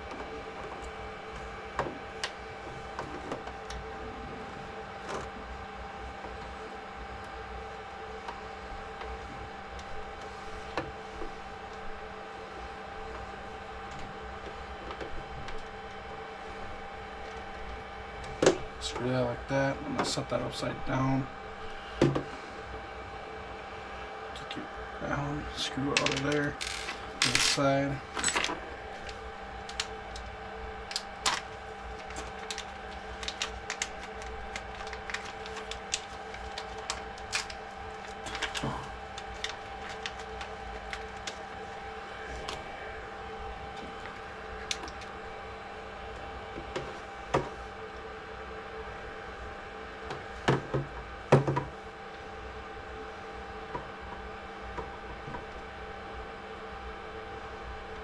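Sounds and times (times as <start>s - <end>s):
steady low hum: 0.0s - 58.0s
hard knocks on a workbench: 50.5s - 51.7s.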